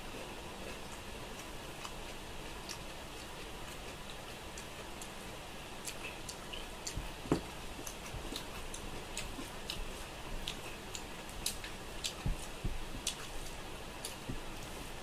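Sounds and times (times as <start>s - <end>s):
wet chewing and lip smacks: 7.8s - 14.7s.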